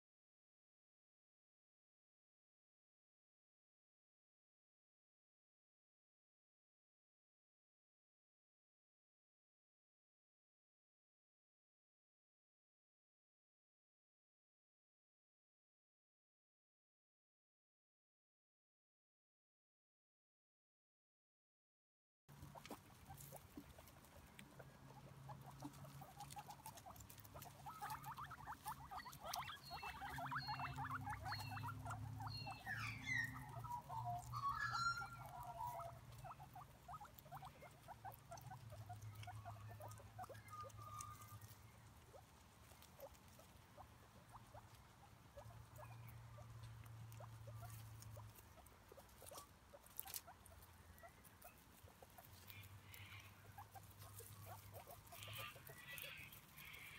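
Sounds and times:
guinea pig squeaks: 0:22.3 - 0:56.9
guinea pigs chewing grass: 0:22.3 - 0:56.9.

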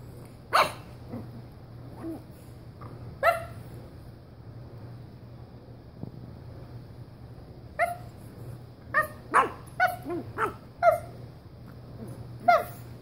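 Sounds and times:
puppy yipping: 0:03.2 - 0:03.6, 0:07.8 - 0:08.1, 0:08.9 - 0:11.1, 0:12.4 - 0:12.8.

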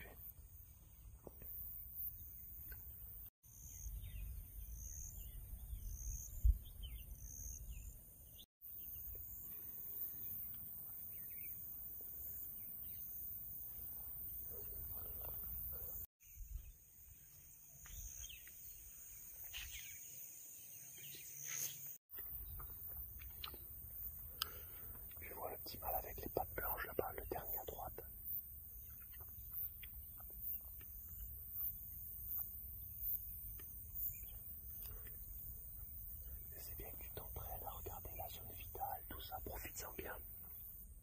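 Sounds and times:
birds chirping: 0:17.8 - 0:28.0, 0:32.2 - 0:40.8.

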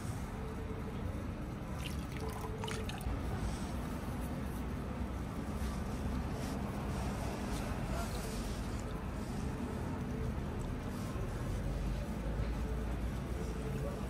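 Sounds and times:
water trickling into stone basin: 0:01.7 - 0:03.2.

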